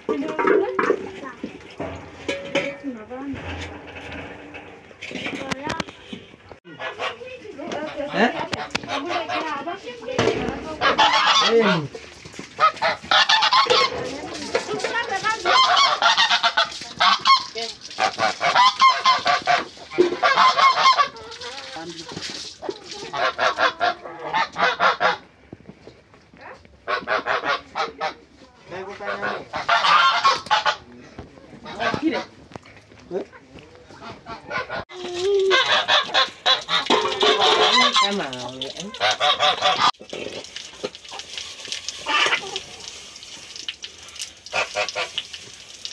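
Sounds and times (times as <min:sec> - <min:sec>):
fowl honking: 0:05.9 - 0:09.8, 0:10.6 - 0:12.0, 0:12.6 - 0:14.1, 0:15.4 - 0:21.4, 0:23.1 - 0:25.2, 0:26.8 - 0:28.2, 0:29.0 - 0:30.8, 0:31.6 - 0:32.3, 0:33.9 - 0:34.8, 0:35.5 - 0:38.3, 0:38.9 - 0:40.0.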